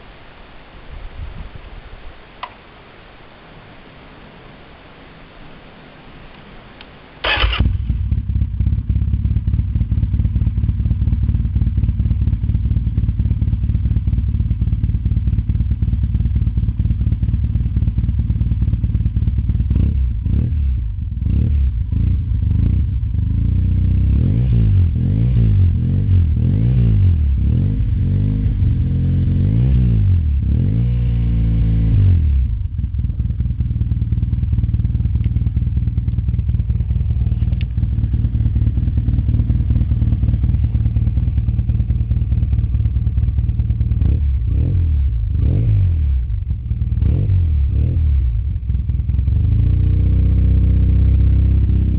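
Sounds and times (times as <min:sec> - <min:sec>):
motorcycle engine starting: 0:06.4 - 0:51.9
engine throttle blips: 0:06.6 - 0:11.7
motorcycle engine idling: 0:07.2 - 0:24.2, 0:32.1 - 0:51.9.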